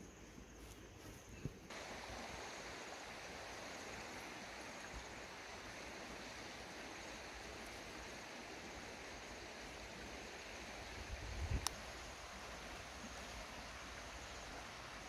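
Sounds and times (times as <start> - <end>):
faint outdoor hiss: 0.0 - 15.0
faint click: 11.6 - 11.8.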